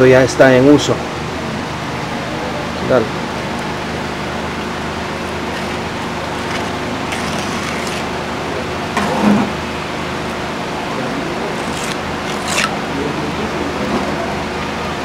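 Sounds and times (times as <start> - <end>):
trowel scraping cement: 5.5 - 8.2, 11.5 - 12.8.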